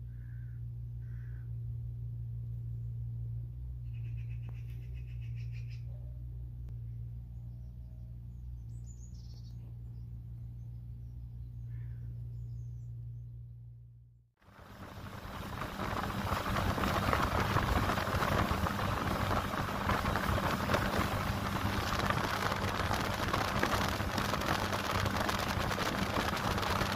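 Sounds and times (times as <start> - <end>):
outboard engine humming: 14.4 - 26.9
water and wind rushing: 14.5 - 26.9.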